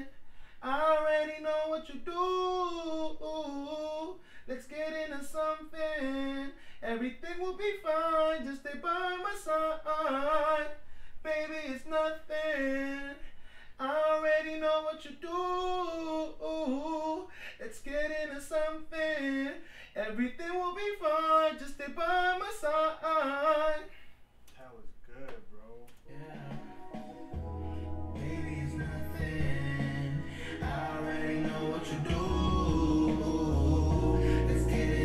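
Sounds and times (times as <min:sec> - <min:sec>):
man singing unaccompanied: 0:00.0 - 0:13.2, 0:28.2 - 0:35.0
breaths between phrases: 0:30.2 - 0:30.6.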